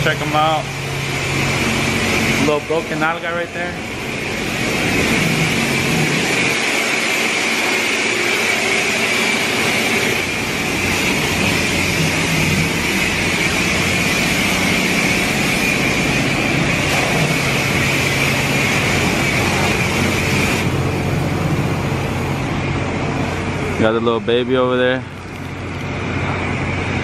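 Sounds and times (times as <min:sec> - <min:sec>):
high-pressure water spray hissing: 0:00.0 - 0:23.8
low hum: 0:03.6 - 0:23.9.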